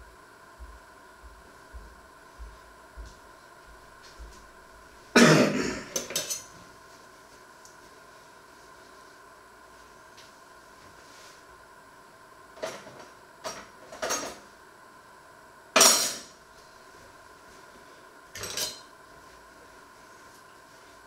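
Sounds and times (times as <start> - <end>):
cutlery clattering on wooden board: 6.0 - 6.5, 18.4 - 18.9.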